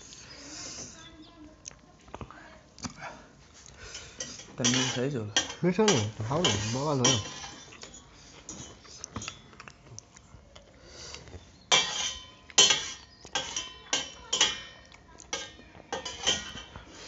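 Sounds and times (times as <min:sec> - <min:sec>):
cutlery clinking on plates: 0:03.9 - 0:09.7, 0:11.7 - 0:17.0.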